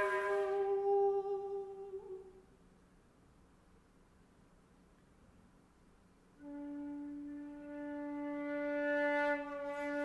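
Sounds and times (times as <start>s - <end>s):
flute holding low note: 0.0s - 2.4s, 6.4s - 10.0s.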